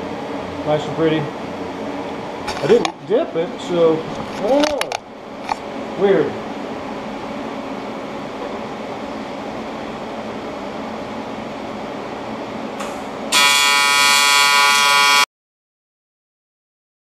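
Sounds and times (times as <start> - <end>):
welding arc buzzing: 12.8 - 15.3.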